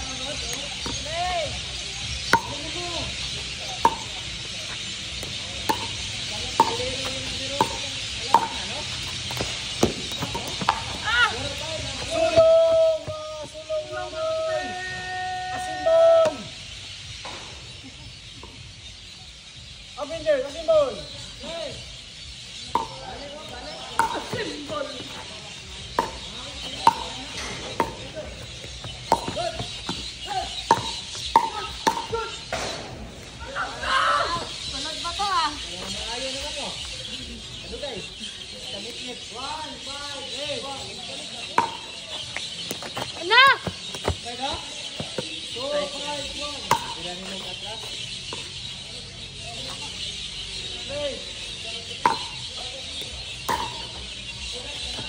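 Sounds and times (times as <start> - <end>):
insects hissing: 0.0 - 55.0
paddles striking ball: 2.2 - 2.7, 3.8 - 4.2, 5.2 - 11.0, 22.8 - 23.1, 25.9 - 33.0, 53.4 - 53.9.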